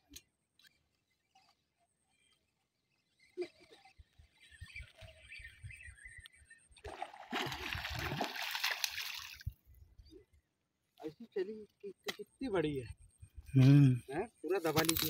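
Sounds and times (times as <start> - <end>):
fish splashing in water: 6.8 - 9.5.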